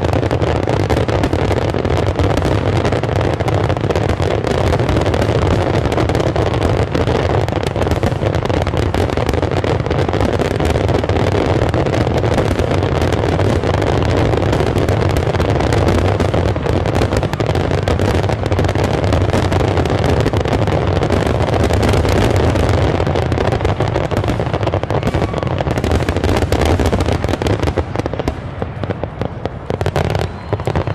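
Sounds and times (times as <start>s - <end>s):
fireworks bangs: 0.0s - 30.9s
fireworks crackling: 0.0s - 30.9s.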